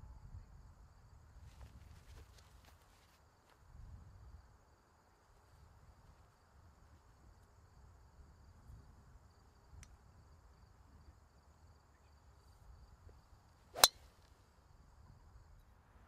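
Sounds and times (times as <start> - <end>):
faint outdoor background: 0.0 - 16.0
golf club swing swish: 13.8 - 14.0
golf club striking ball: 13.8 - 14.1.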